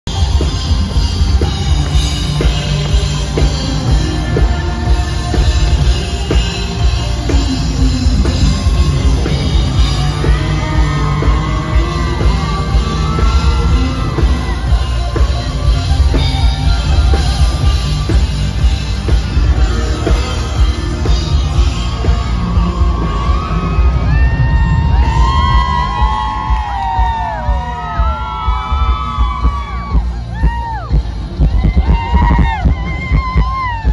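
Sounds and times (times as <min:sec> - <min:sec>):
country rock band playing: 0:00.1 - 0:33.9.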